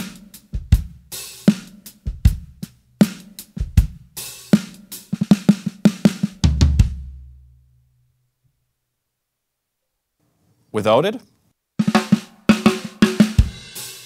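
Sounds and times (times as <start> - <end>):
drum fill: 0.0 - 7.4, 11.8 - 14.0
drum kit groove: 0.0 - 7.4, 11.8 - 14.0.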